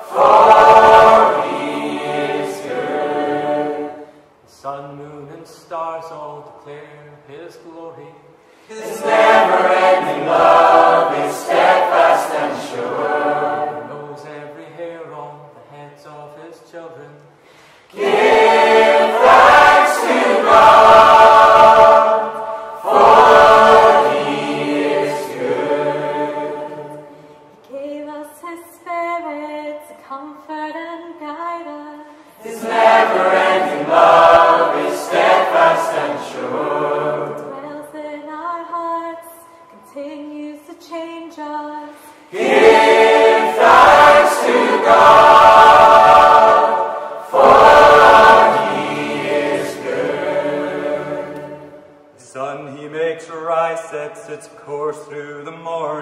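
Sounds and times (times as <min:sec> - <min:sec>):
choir singing unaccompanied: 0:00.0 - 0:04.1, 0:08.7 - 0:15.1, 0:17.9 - 0:27.4, 0:32.4 - 0:38.1, 0:42.1 - 0:52.0.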